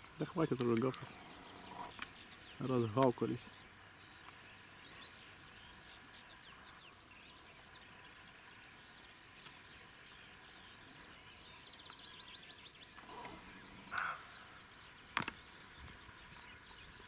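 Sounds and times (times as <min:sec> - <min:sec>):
songbirds chirping: 0:00.0 - 0:17.0.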